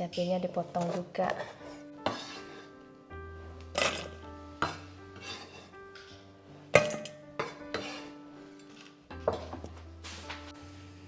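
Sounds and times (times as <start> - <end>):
soft background music: 0.0 - 11.0
dishes and utensils clinking: 3.7 - 9.8.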